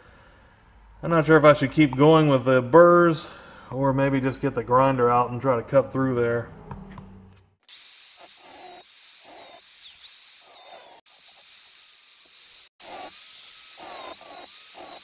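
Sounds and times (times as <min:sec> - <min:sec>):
angle grinder grinding metal: 0:07.6 - 0:15.0.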